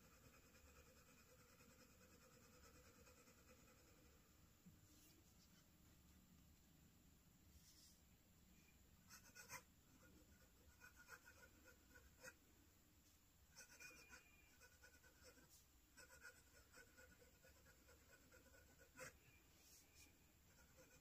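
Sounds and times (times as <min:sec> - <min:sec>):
pen nib scratching on paper: 0:00.0 - 0:04.2, 0:09.1 - 0:12.4, 0:13.5 - 0:19.3, 0:20.5 - 0:21.0.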